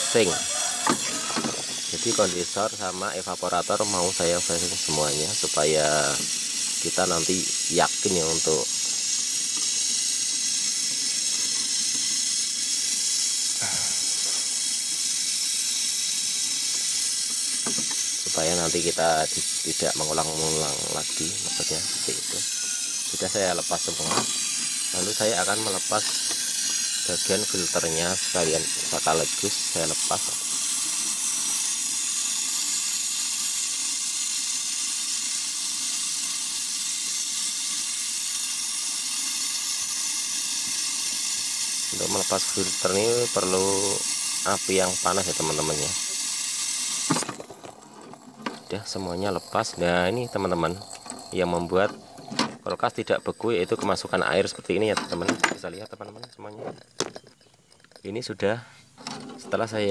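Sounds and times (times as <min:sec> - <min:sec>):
gas torch flame hissing: 0:00.0 - 0:59.1.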